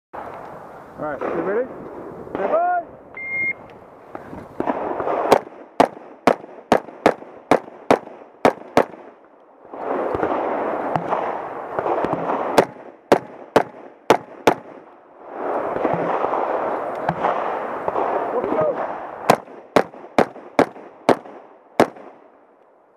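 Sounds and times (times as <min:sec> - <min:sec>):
rustling noise: 0:04.0 - 0:04.9
rifle shots: 0:04.6 - 0:09.2, 0:09.9 - 0:22.3.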